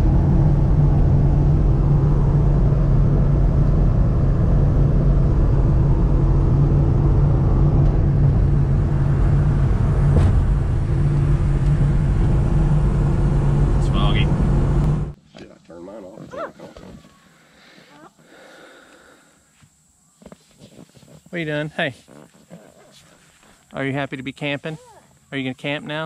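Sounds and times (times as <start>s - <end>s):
car engine and road noise: 0.0s - 15.2s.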